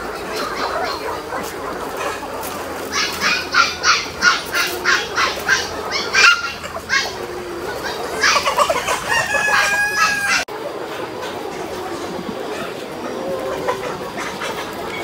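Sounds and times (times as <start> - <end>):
chickens clucking: 0.0 - 15.0
chickens squawking: 0.0 - 15.0.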